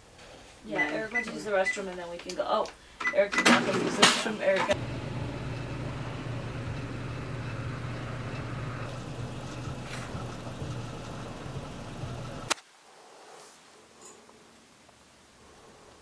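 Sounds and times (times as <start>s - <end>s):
low mechanical hum: 4.5s - 12.6s.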